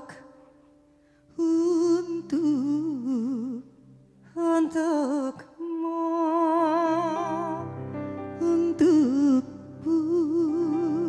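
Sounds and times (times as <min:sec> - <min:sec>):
women singing with vibrato: 0:04.3 - 0:07.7, 0:08.4 - 0:11.0.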